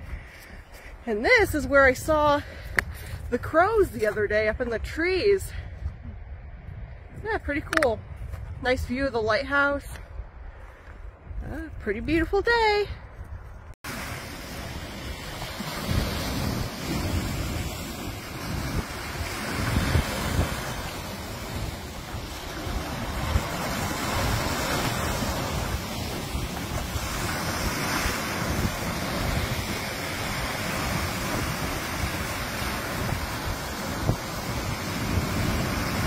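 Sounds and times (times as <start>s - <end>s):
wind buffeting microphone: 0.0s - 36.0s
waves breaking on rocks: 13.9s - 36.0s.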